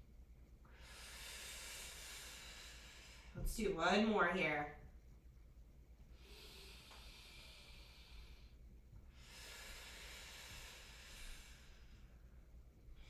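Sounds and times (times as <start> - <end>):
woman breathing: 0.5 - 3.6, 6.0 - 13.0.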